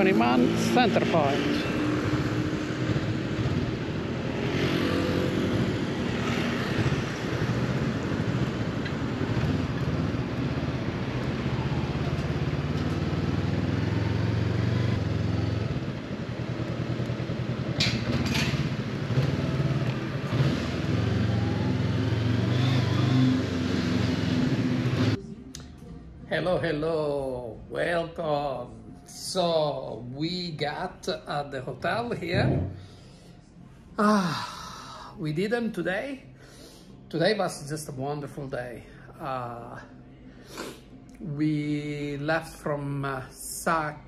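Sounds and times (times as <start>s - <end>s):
motorcycle engine running: 0.0s - 25.2s
wind and road noise: 0.0s - 25.2s.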